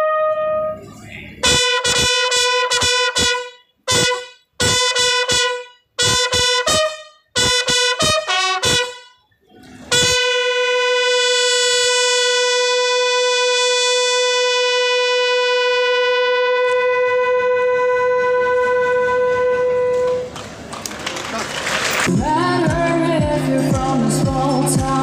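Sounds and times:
bugle call: 1.4s - 9.2s, 9.9s - 20.4s.

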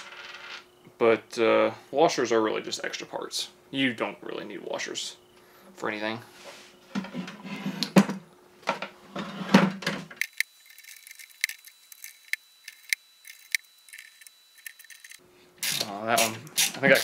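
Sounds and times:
ratchet wrench clicking: 10.2s - 17.0s.

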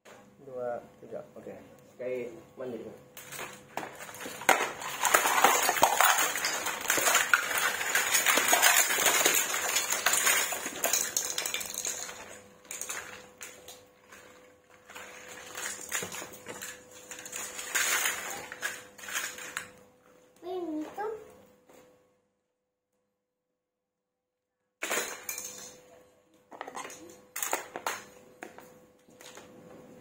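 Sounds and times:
plastic toys clattering on tile floor: 3.2s - 19.7s, 24.8s - 29.5s.

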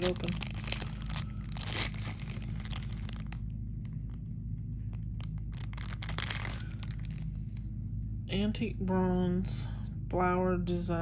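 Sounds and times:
plastic bag crinkling and tearing: 0.0s - 3.5s, 4.9s - 7.6s
steady low hum: 0.0s - 11.0s.

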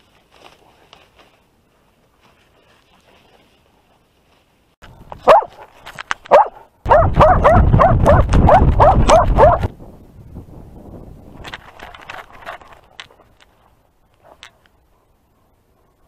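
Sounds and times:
wind and camera jostling: 0.0s - 15.0s
dog barking: 5.2s - 5.7s, 6.3s - 9.7s.

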